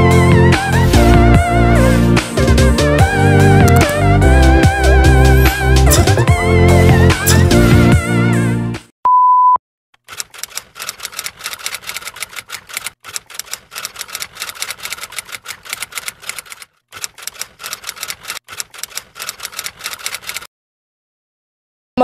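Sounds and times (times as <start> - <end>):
typewriter key clicks: 3.7 - 4.0, 10.0 - 20.5
short beep: 9.0 - 9.6.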